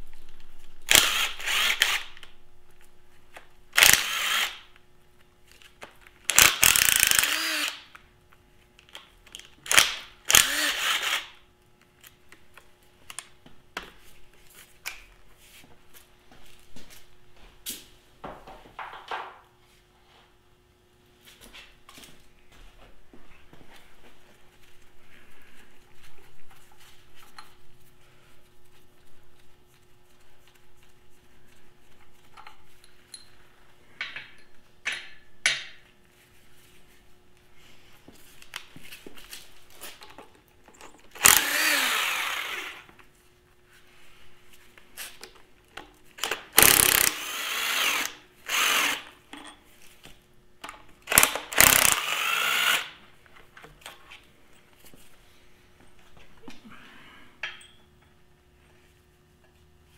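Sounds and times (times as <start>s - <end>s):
cordless power tool spinning bolts: 0.9s - 2.2s, 3.7s - 4.6s, 6.3s - 7.9s, 9.7s - 11.4s, 41.1s - 42.9s, 46.2s - 49.1s, 51.0s - 53.0s
clinks and taps of tools: 32.3s - 33.4s, 34.0s - 35.8s, 49.3s - 49.7s, 57.4s - 58.2s.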